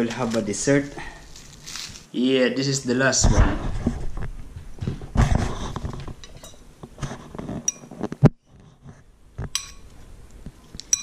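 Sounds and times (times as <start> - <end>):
fork clinking against glass bowl: 7.7 - 7.9, 9.6 - 9.9.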